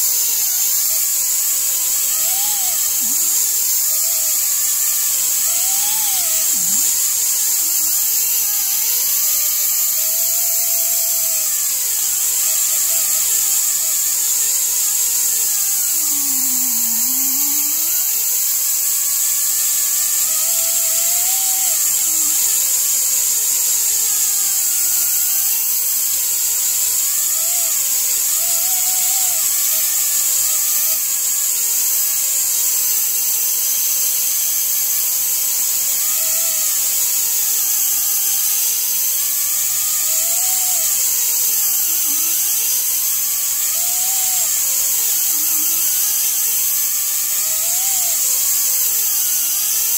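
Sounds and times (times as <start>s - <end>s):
die grinder air hiss and whine: 0.0s - 49.9s
rasp of sanding: 0.0s - 49.9s.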